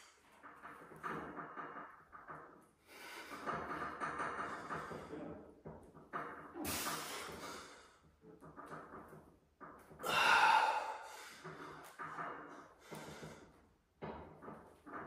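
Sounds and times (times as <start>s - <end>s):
man breathing heavily with effort: 10.0s - 12.0s, 12.8s - 13.6s.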